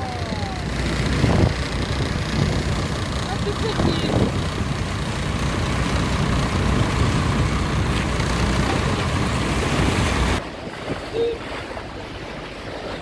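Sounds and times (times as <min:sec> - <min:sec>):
boat engine running: 0:00.0 - 0:13.0
water washing along hull: 0:00.0 - 0:13.0
wind noise on microphone: 0:00.9 - 0:04.7.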